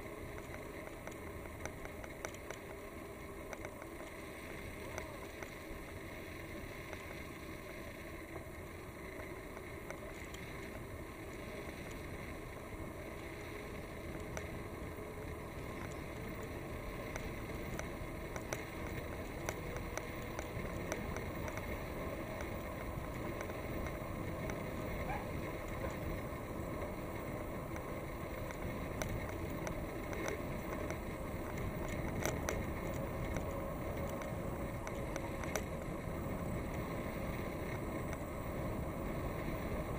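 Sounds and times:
bicycle tyres on asphalt: 0.0 - 39.9.

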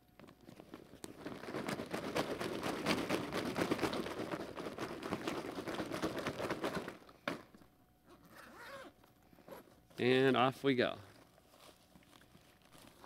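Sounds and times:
paper shaken in plastic bag: 0.5 - 7.1.

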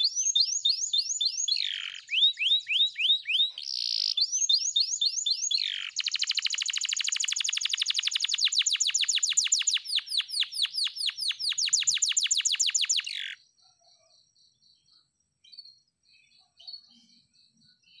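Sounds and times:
canary singing rapid trill: 0.0 - 13.4.

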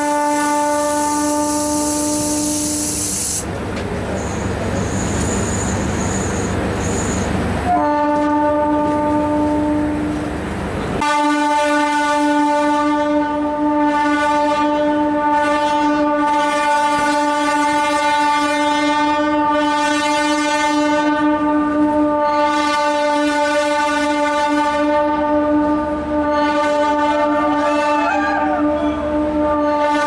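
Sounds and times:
train horn blast: 0.0 - 3.4, 7.6 - 10.2, 11.0 - 30.0
rushing hiss: 0.5 - 3.5.

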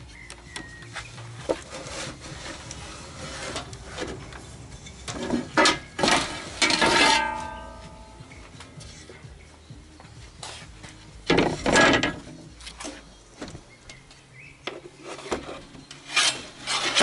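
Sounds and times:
board lid scraping on wood: 1.4 - 4.3.

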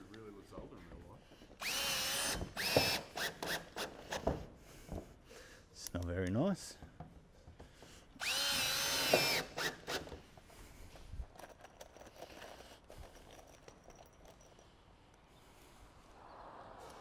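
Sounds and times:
cordless drill whirring: 1.6 - 4.5, 8.2 - 10.3.

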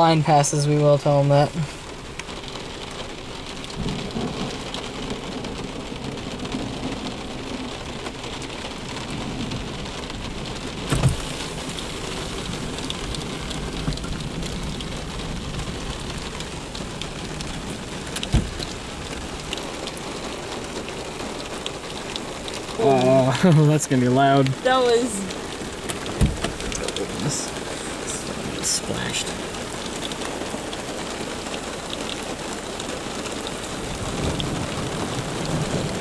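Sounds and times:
heavy rain drumming on car roof: 0.0 - 36.0
sharp thumps: 18.2 - 18.8, 25.8 - 26.8.

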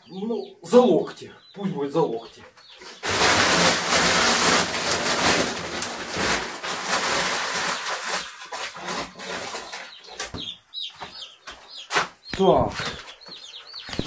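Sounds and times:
chicks peeping: 0.0 - 14.0
dense rustling: 2.9 - 9.8.

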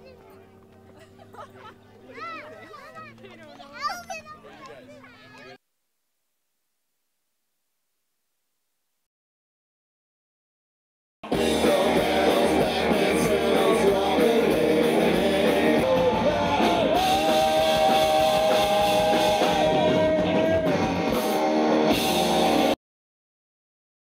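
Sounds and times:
person singing: 11.3 - 21.2
rock song with guitar: 11.3 - 22.8.

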